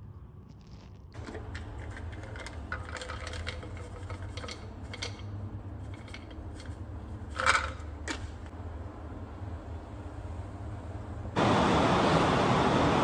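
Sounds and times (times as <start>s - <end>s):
plastic container clicks and rattles: 1.2s - 8.3s.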